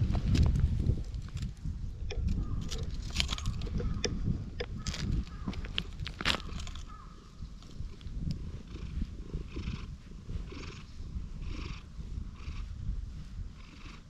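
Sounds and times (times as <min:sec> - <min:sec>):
cat purring: 0:07.8 - 0:14.0.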